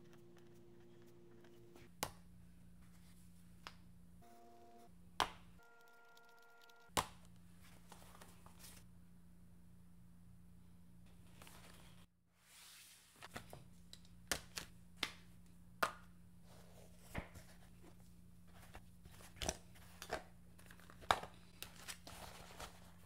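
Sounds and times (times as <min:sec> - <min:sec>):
soft handling noise: 0:07.4 - 0:08.9, 0:11.1 - 0:12.1, 0:16.4 - 0:23.0.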